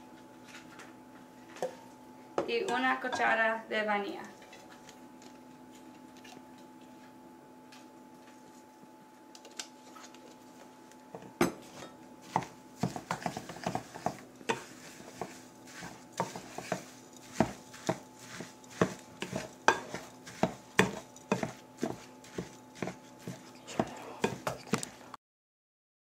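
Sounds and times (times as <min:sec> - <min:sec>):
utensil knocking on mixing bowl: 0:12.3 - 0:24.9.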